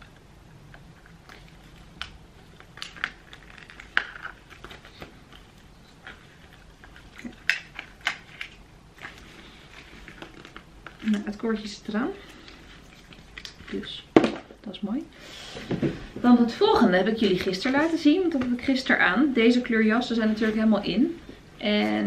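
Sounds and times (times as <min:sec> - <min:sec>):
plastic rustling: 0:00.7 - 0:14.8.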